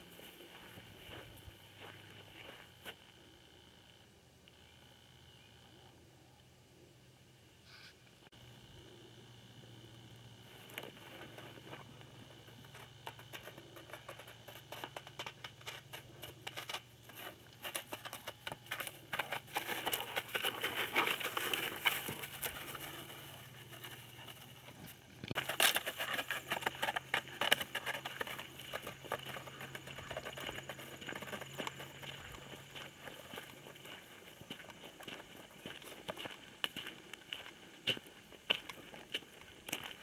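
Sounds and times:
dry leaves and twigs crackling: 10.6 - 40.0.

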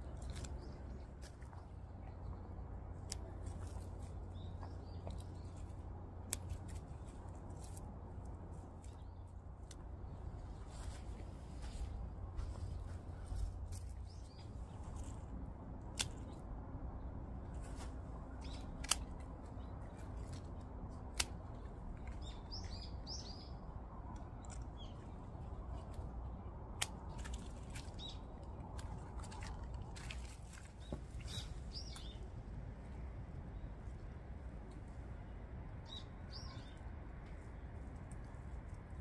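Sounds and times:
scissors snipping stems: 6.2 - 7.8, 15.9 - 16.4, 18.4 - 22.2, 26.7 - 28.0
birds chirping: 27.8 - 29.6, 30.6 - 32.3, 35.8 - 36.9.

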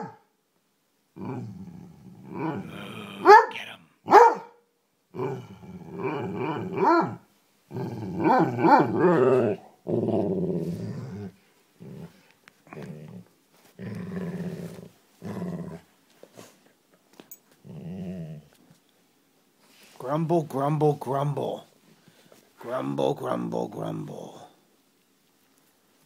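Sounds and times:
dog growling: 1.2 - 3.4, 5.1 - 16.6, 17.6 - 18.6.

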